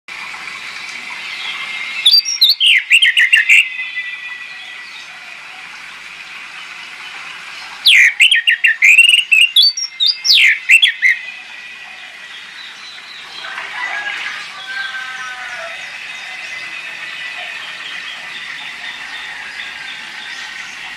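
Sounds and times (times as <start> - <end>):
bird singing whistled phrases: 1.3 - 5.0, 7.8 - 11.4.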